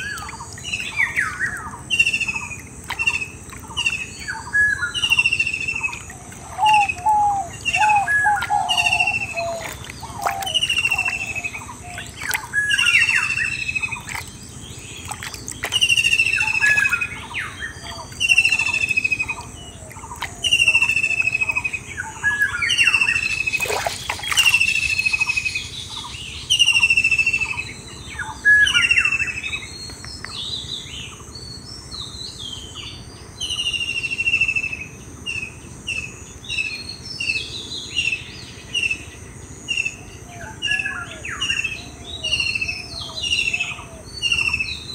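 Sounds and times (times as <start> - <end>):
bird chirps: 0.0 - 32.8.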